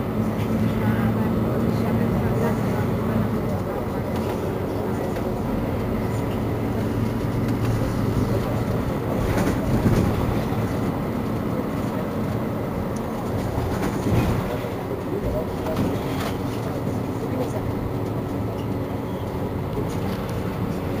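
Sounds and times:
bus diesel engine idling: 0.0 - 21.0.

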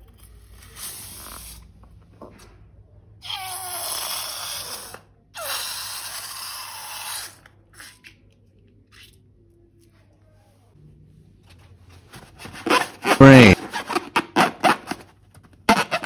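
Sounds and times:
balloon falling squeal: 15.7 - 16.0.

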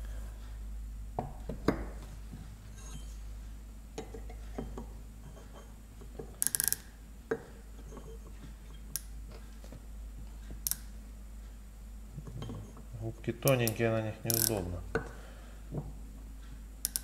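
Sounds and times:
low steady hum: 0.0 - 17.0
micrometer metal clicks: 6.4 - 6.9, 10.5 - 11.0, 13.4 - 15.1, 16.8 - 17.0.

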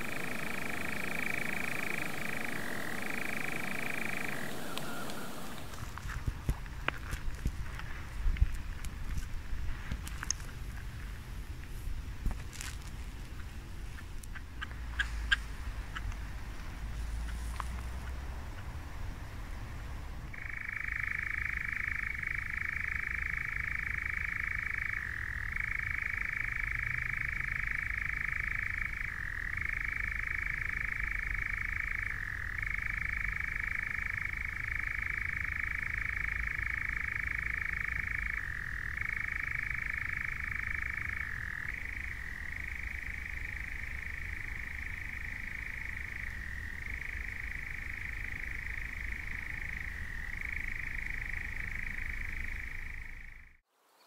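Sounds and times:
nightjar churring trill: 0.0 - 5.9, 20.3 - 53.6.

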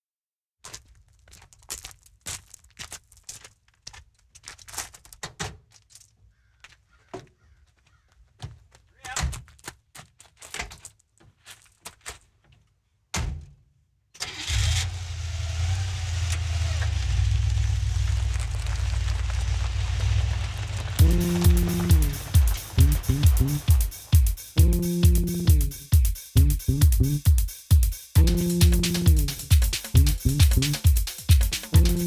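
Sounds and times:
car engine running: 14.9 - 23.9.

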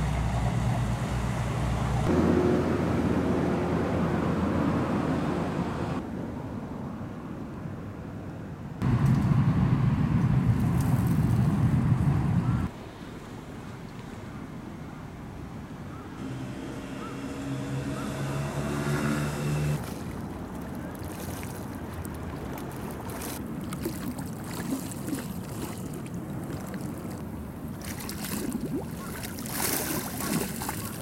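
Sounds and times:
boat engine humming: 0.0 - 6.0, 15.9 - 31.0
river water lapping: 15.9 - 31.0.

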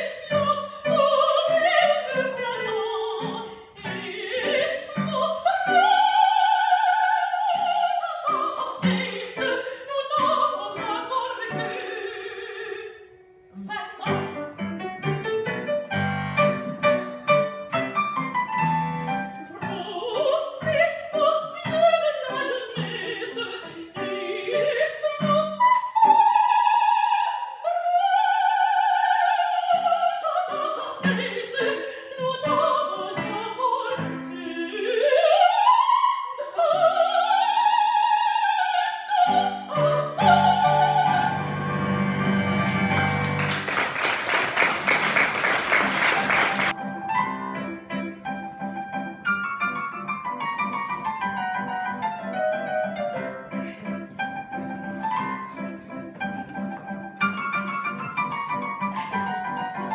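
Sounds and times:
woman singing opera: 0.0 - 14.6, 19.3 - 41.8
digital piano: 14.0 - 19.8, 45.9 - 59.9
applause: 42.6 - 46.8.

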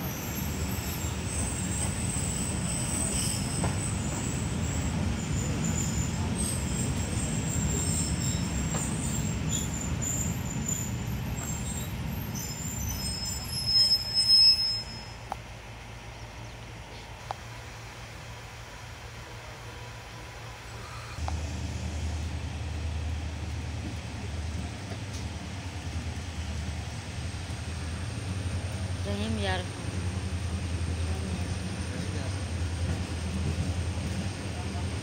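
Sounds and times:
brief high squeal: 1.0 - 3.9, 7.5 - 15.3
thin high squeaks: 12.4 - 15.3
car road noise rumble: 15.2 - 35.0.

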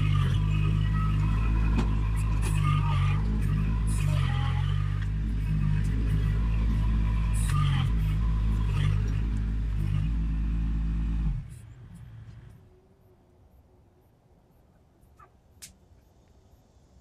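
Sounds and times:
engine idling: 0.0 - 12.7.

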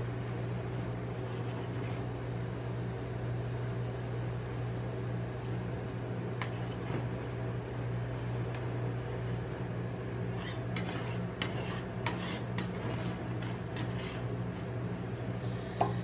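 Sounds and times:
low machine hum: 0.0 - 16.0
metal spatula scraping: 1.0 - 2.0, 6.4 - 7.0, 9.3 - 14.7.

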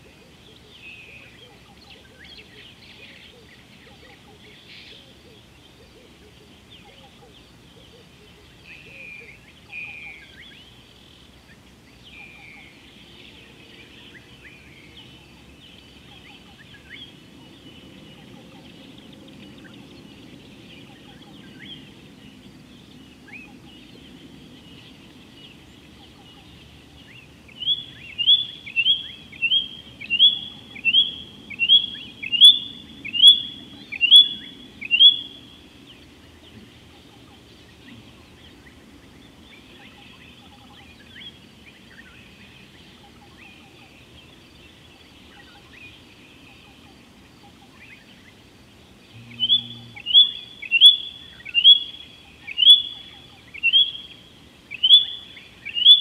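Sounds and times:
other birds chirping: 0.0 - 56.0
bird calling with falling notes: 24.7 - 38.8, 49.1 - 56.0.

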